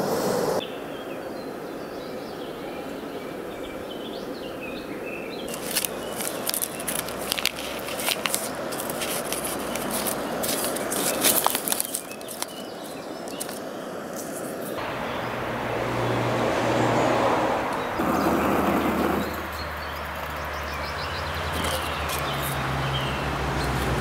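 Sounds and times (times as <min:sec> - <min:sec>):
steady hiss: 0:00.0 - 0:00.9
small birds chirping: 0:00.0 - 0:16.1, 0:17.7 - 0:24.0
paper sachet crinkling and tearing: 0:05.5 - 0:14.8.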